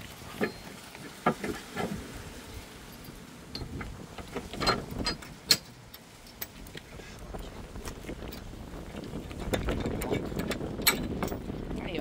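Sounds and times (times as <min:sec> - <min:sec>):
metal clanks and clicks: 0:03.5 - 0:06.6, 0:09.5 - 0:11.4.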